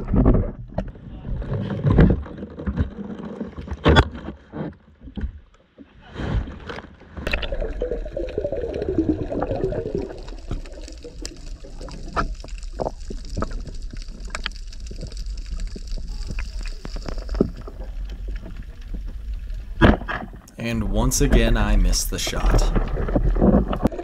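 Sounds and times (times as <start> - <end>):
water splashing and sloshing: 0.0 - 24.0
bubbles gurgling: 7.2 - 19.8, 21.3 - 24.0
muffled underwater rumble: 7.3 - 24.0.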